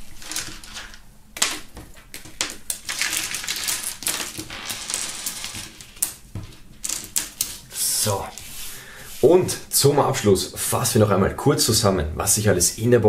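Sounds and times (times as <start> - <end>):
game pieces and dice clicking: 0.2 - 6.2.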